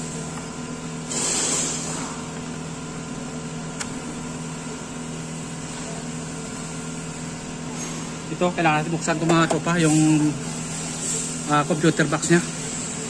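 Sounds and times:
steady machine hum: 0.0 - 13.0
sharp click: 3.8 - 4.0.

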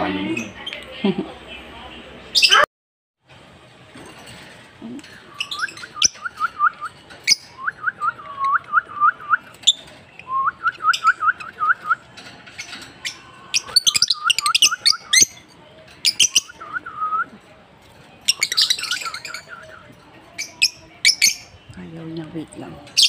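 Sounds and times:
lovebird chirping: 5.3 - 8.5.

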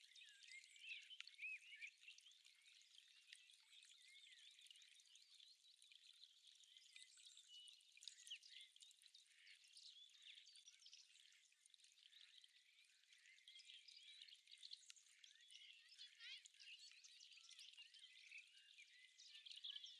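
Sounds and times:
songbirds chirping: 0.0 - 19.9.

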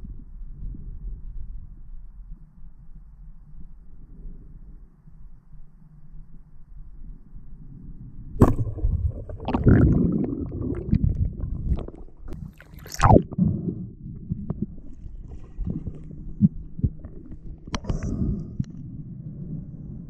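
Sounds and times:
water sloshing and gurgling: 8.4 - 19.1.

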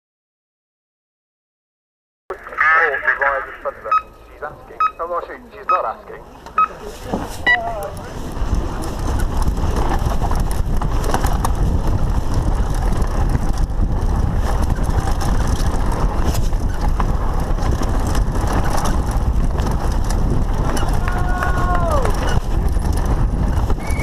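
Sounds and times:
bike tyres rumbling on dirt: 6.9 - 24.0.

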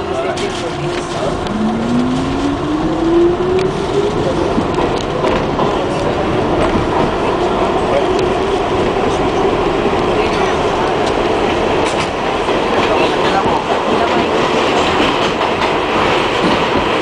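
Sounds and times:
subway motor whine: 0.0 - 13.6
wheels rumbling on track: 0.0 - 17.0
rail joint clicks: 0.4 - 17.0.

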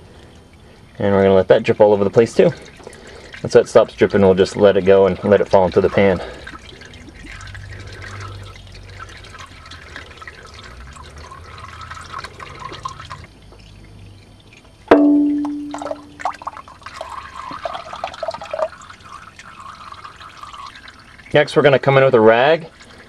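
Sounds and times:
oil pouring and dripping: 0.0 - 23.0
sharp metallic clang: 14.9 - 16.2.

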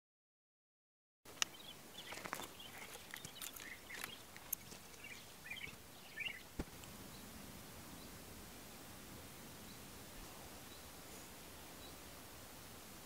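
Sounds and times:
small birds twittering: 1.3 - 8.2, 9.4 - 12.1
soft steady hiss: 1.3 - 13.0.

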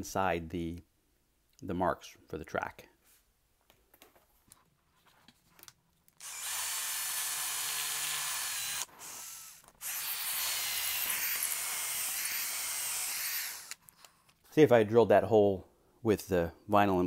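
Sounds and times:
cordless drill drilling into floor: 6.2 - 13.8.

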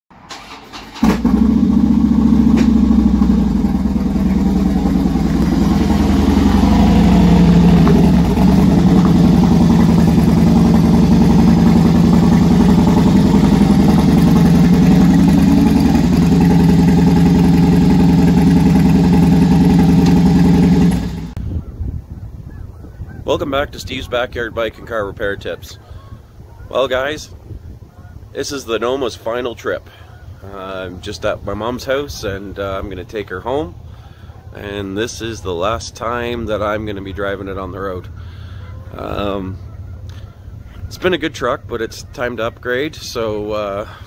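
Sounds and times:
motorcycle engine idling: 0.4 - 21.4, 33.5 - 44.0.

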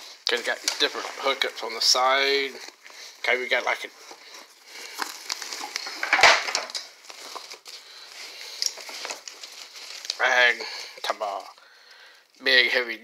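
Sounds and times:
backpack fabric rustling: 0.0 - 6.0.

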